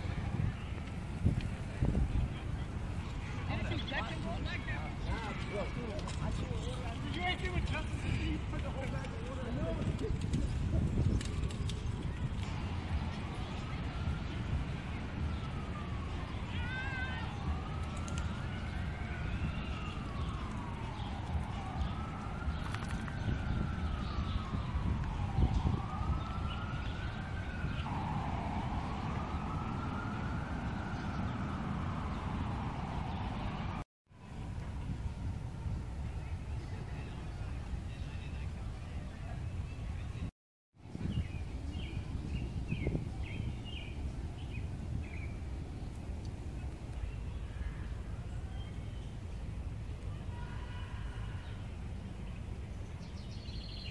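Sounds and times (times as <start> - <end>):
siren wailing: 12.4 - 33.8.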